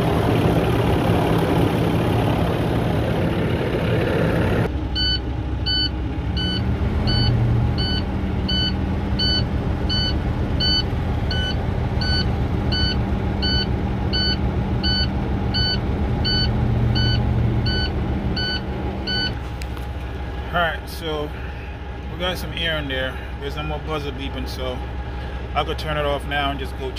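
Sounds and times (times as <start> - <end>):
diesel engine idling: 0.0 - 26.9
truck warning buzzer beeping: 5.0 - 19.4.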